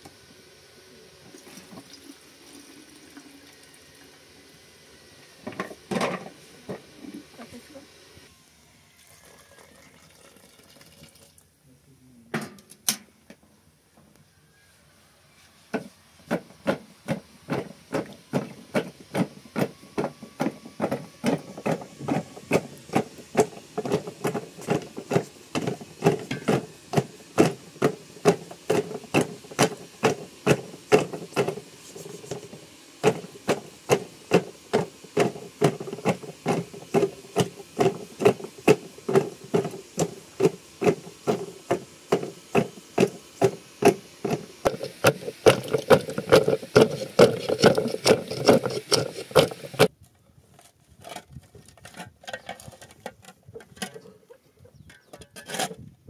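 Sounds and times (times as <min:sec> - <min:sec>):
stick knocking in plastic jar: 0:34.3 - 0:49.9.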